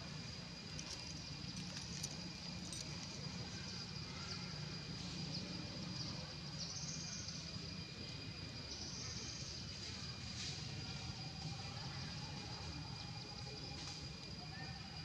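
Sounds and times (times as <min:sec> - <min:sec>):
faint high whine: 0:00.0 - 0:15.0.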